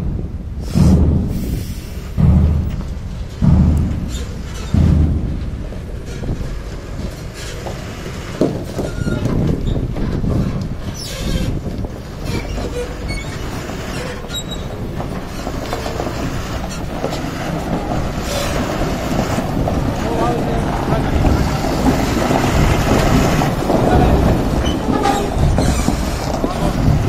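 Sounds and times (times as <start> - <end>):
trailer rattling: 0.0 - 27.0
truck engine running: 0.0 - 27.0
squeaks from truck: 4.0 - 4.9, 6.0 - 27.0.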